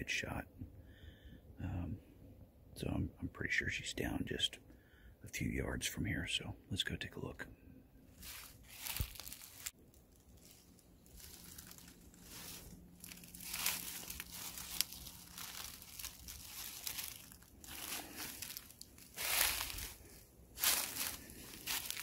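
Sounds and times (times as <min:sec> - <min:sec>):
footsteps crunching dry leaves: 0:08.1 - 0:22.0.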